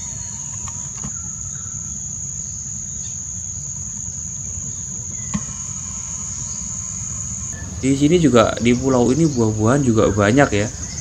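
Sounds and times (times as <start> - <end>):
insects chirring: 0.0 - 11.0
low rumble: 4.4 - 11.0.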